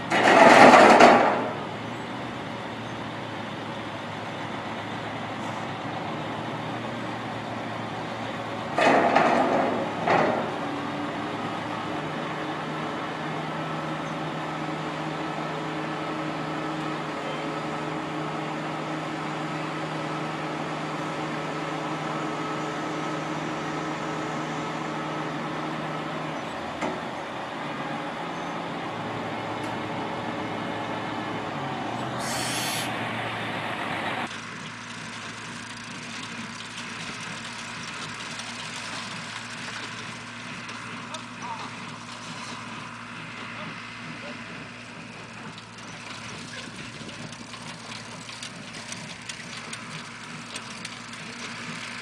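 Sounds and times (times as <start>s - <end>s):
diesel truck engine running: 0.0s - 52.0s
air-brake hiss: 32.2s - 33.0s.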